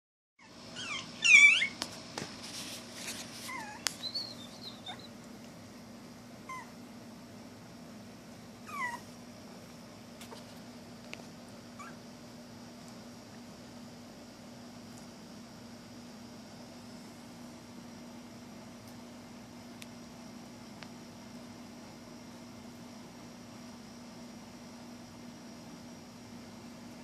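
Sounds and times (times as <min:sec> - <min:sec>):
puppies whining and yelping: 0:00.4 - 0:01.9, 0:03.3 - 0:05.2, 0:06.4 - 0:06.8, 0:08.6 - 0:09.1, 0:11.8 - 0:12.1
faint steady hum: 0:00.4 - 0:27.0.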